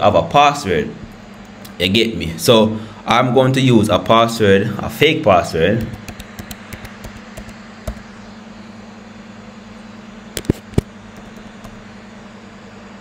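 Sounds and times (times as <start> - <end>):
steady low hum: 0.0 - 13.0
keys typing clicks: 5.8 - 8.0.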